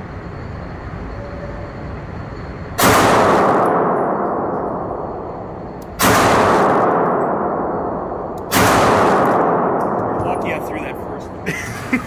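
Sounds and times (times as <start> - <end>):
pistol shots echoing indoors: 2.8 - 10.2.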